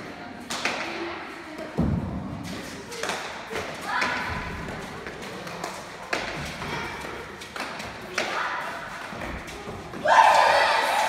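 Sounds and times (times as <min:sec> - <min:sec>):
children calling out: 0:10.0 - 0:11.0.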